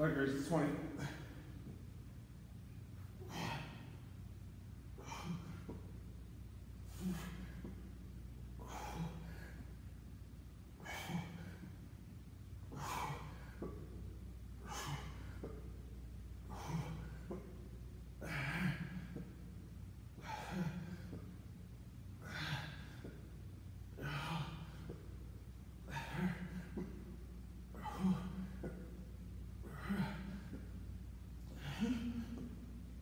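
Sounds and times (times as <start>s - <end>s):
man exhaling forcefully: 6.9s - 7.6s, 8.6s - 9.6s.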